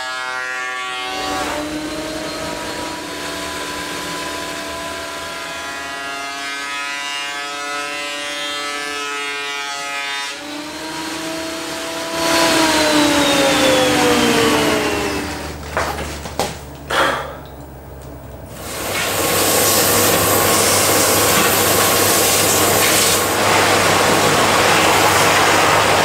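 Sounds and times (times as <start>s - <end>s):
thickness planer whining: 0.0s - 26.0s
planer cutting board rushing: 10.4s - 17.2s, 18.5s - 26.0s
sharp knocks: 15.6s - 17.6s.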